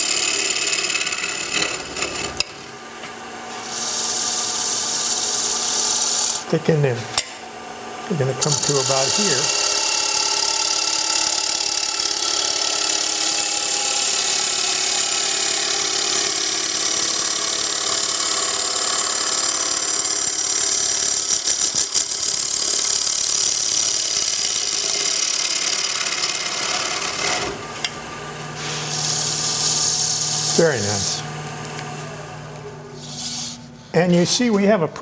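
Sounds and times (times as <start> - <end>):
lathe humming: 0.0 - 34.5
gouge cutting wood hiss: 28.6 - 31.2, 33.1 - 33.6.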